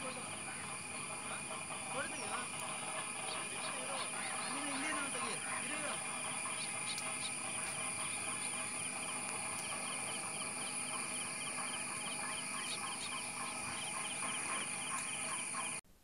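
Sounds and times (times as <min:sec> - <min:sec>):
birds chirping: 0:00.0 - 0:15.8
insects droning: 0:00.0 - 0:15.8.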